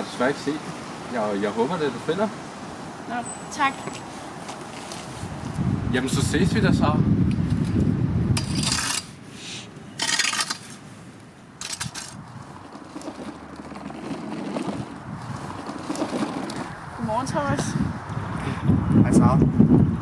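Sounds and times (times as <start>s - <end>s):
rod raking dry leaves: 11.6s - 16.7s.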